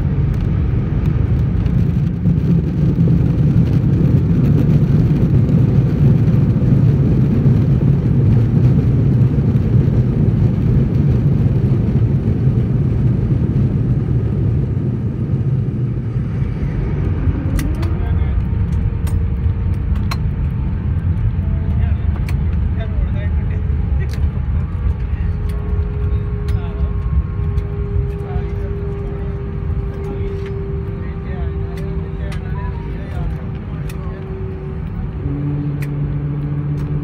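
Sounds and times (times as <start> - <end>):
airliner engines rumbling: 0.0 - 37.0
wheels rolling on tarmac: 0.1 - 37.0.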